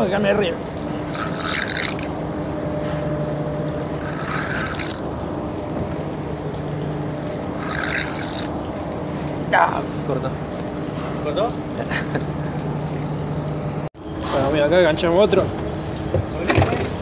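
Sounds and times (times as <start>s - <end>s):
steady low hum: 0.0s - 16.5s
river water splashing: 0.6s - 10.8s.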